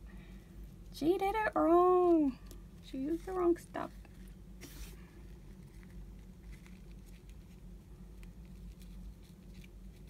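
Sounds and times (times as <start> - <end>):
low steady hum: 0.0 - 10.0
paper rustling: 3.0 - 7.6.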